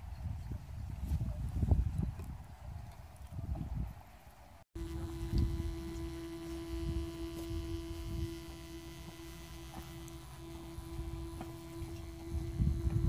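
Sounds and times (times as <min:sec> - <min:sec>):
mid-pitched hum: 0:04.8 - 0:13.0.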